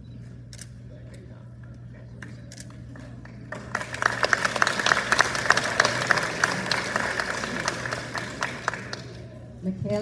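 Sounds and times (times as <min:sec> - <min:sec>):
audience applauding: 0:02.9 - 0:09.4.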